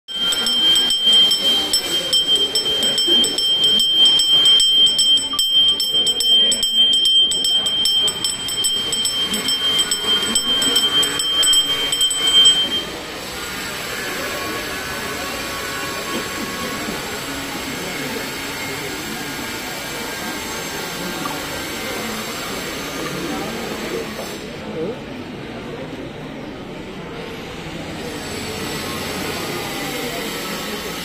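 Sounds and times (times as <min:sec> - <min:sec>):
hand bell ringing: 0:00.1 - 0:13.0.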